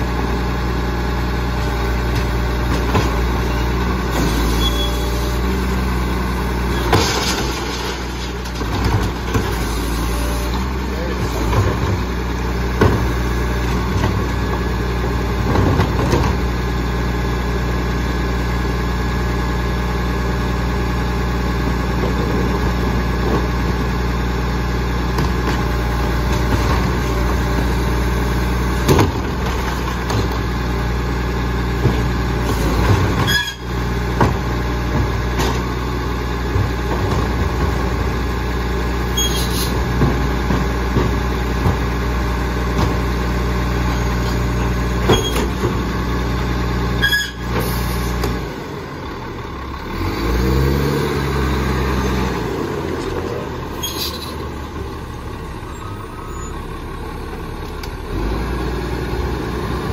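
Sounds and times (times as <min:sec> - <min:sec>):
diesel truck idling: 0:00.0 - 0:59.9
trash carts clattering and thumping: 0:01.5 - 0:16.7, 0:21.8 - 0:24.0, 0:25.1 - 0:48.8.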